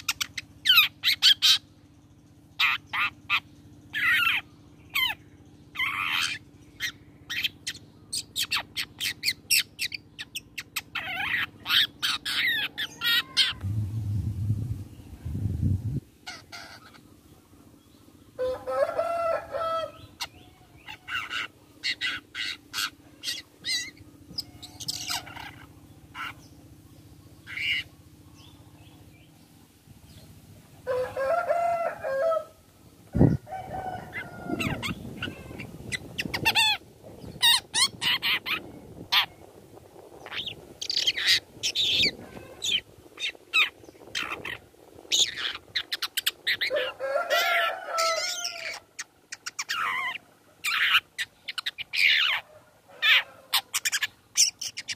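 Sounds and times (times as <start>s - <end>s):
harsh buzzy bird call: 2.6s - 14.2s, 27.4s - 28.6s.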